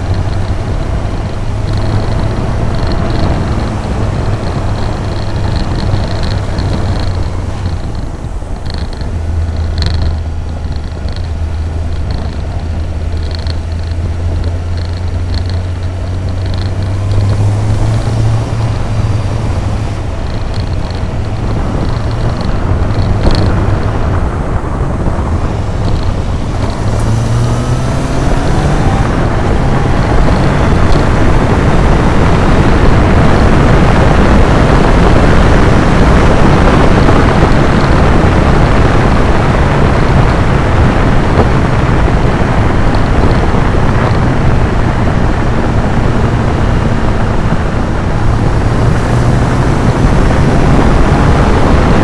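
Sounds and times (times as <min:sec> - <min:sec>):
motorcycle engine running: 0:00.0 - 0:52.0
wind and road noise: 0:00.0 - 0:52.0.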